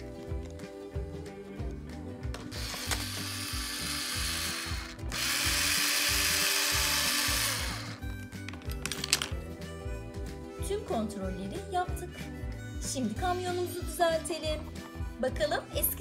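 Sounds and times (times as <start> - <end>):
background music: 0.0 - 16.0
electric screwdriver whirring: 2.4 - 8.0.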